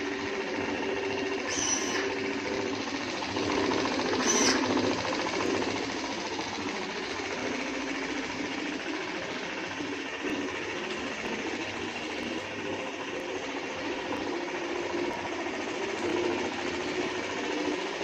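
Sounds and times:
electric mop motor buzzing: 0.0s - 18.0s
water sprayer hissing: 1.2s - 2.7s, 4.0s - 16.3s.

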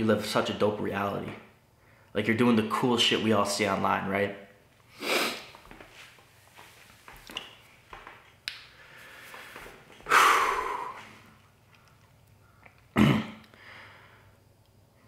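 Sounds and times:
short sharp breath: 8.8s - 11.2s
man sighing: 10.0s - 11.1s.

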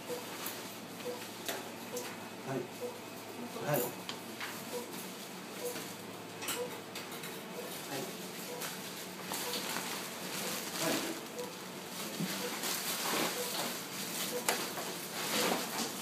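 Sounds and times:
patient monitor short beeps: 0.0s - 0.2s, 1.0s - 1.2s, 2.8s - 3.0s, 5.6s - 5.8s, 6.6s - 6.8s, 9.4s - 9.6s, 11.3s - 11.6s, 12.4s - 12.6s, 13.3s - 13.6s
steady equipment hum: 0.0s - 16.0s.

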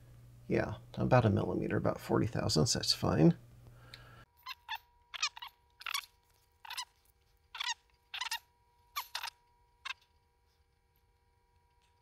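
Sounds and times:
faint steady whine: 0.0s - 12.0s
squeaky chirps: 4.4s - 10.1s.

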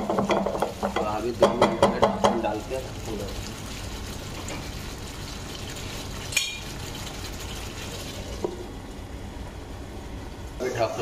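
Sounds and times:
gravy simmering in a pan: 0.0s - 8.9s.

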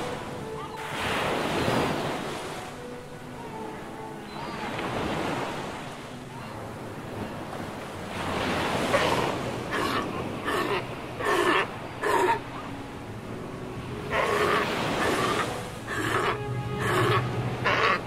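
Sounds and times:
sea lions calling: 0.0s - 2.0s, 8.1s - 12.9s, 13.8s - 18.0s.

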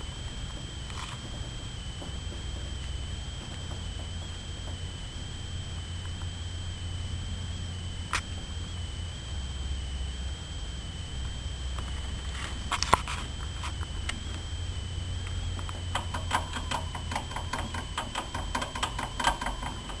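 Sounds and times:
hamster clicks and scratches: 15.7s - 20.0s.

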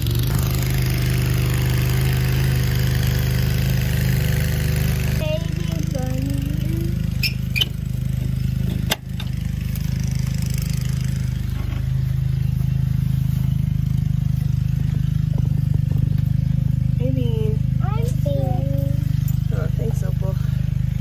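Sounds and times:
small engine humming: 0.0s - 21.0s.

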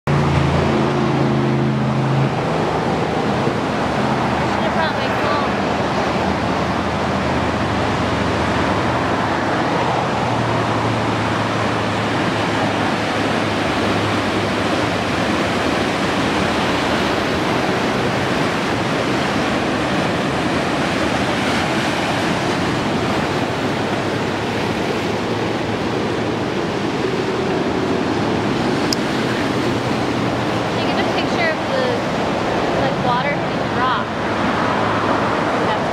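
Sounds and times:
waves breaking on shore: 0.1s - 35.9s.

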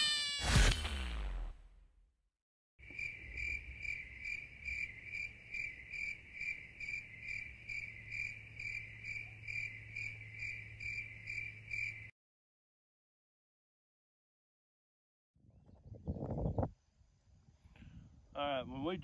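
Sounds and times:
insect chirping: 2.8s - 12.1s.

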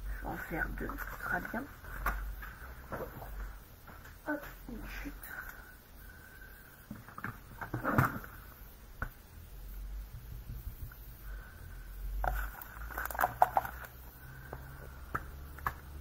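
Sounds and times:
plastic clatter: 12.2s - 13.9s.

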